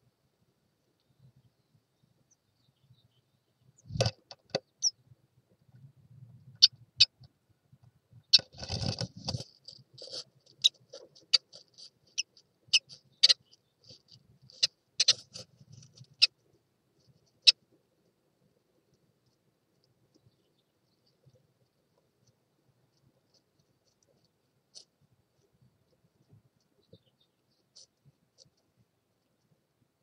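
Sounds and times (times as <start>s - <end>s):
chicks ticking and peeping: 8.2s - 16.4s.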